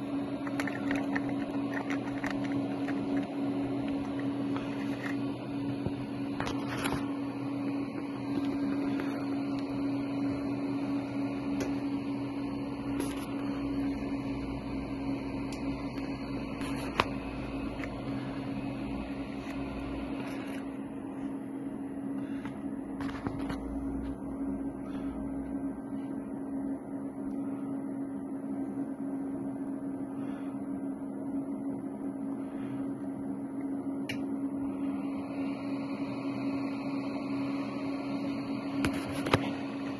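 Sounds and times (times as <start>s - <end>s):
low machine hum: 0.0s - 39.9s.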